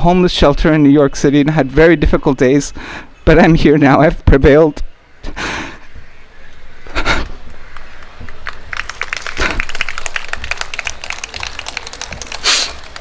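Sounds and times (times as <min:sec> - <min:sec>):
audience applauding: 0:07.7 - 0:13.0.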